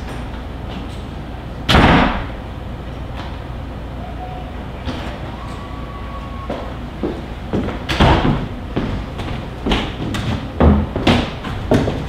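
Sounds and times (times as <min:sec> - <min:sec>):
low room noise: 0:00.0 - 0:12.0.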